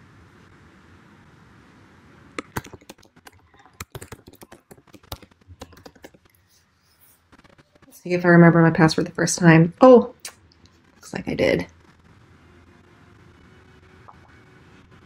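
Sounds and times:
keyboard key clicks: 2.4 - 6.2.

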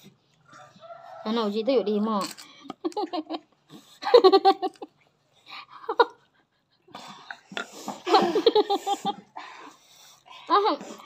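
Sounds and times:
woman laughing: 4.0 - 4.9, 8.0 - 9.3.

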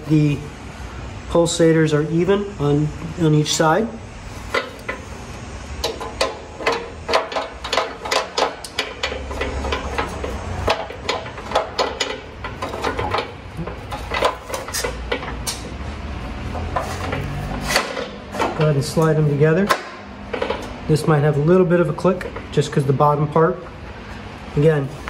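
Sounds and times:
metal tubes clanking and rattling: 4.5 - 5.1, 5.8 - 15.8, 16.5 - 21.2.

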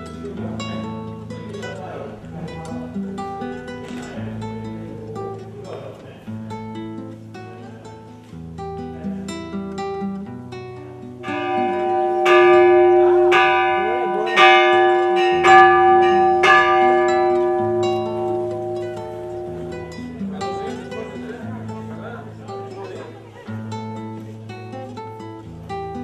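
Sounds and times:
plucked string music: 0.0 - 26.0
church bell ringing: 11.2 - 21.1.

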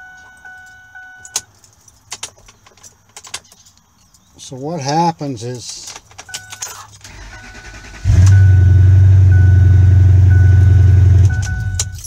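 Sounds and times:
faint high beep: 0.0 - 1.4, 6.3 - 12.0
keys jangling in ignition: 0.1 - 4.3, 5.6 - 7.2, 11.2 - 12.0
truck engine running: 7.1 - 12.0.

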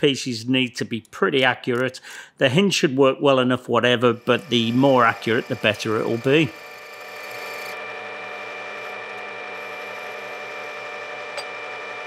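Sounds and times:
metal lathe cutting brass rod: 4.0 - 12.0.

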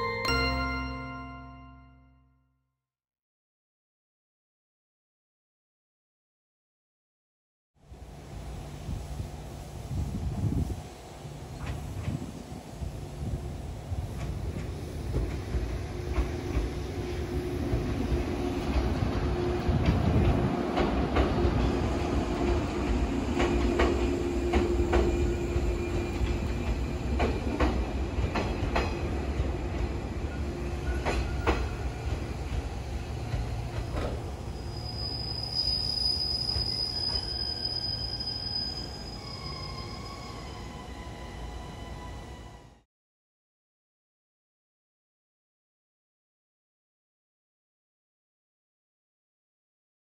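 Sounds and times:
electric train rumbling past: 7.8 - 42.8
high thin wheel squeal: 34.6 - 42.4.

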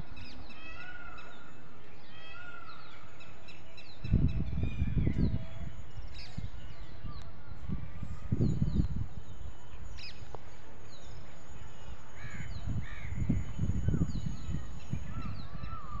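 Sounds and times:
low microphone rumble: 3.9 - 15.9.

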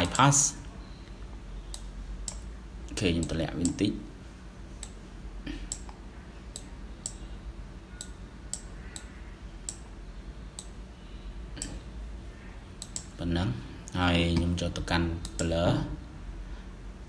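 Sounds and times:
faint low hum: 0.0 - 17.0
computer mouse clicking: 1.0 - 2.5, 5.7 - 7.2, 8.0 - 10.0, 12.8 - 13.1.

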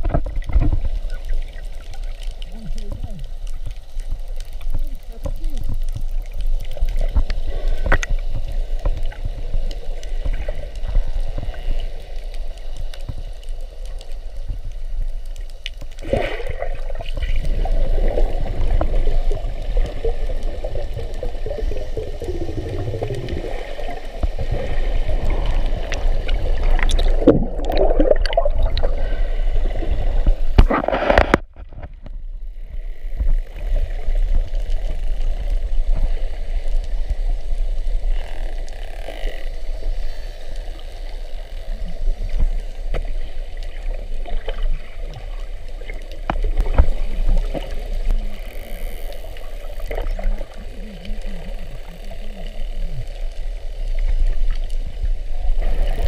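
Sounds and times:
underwater water sloshing: 0.0 - 56.0
bubbling surges: 16.0 - 31.4.

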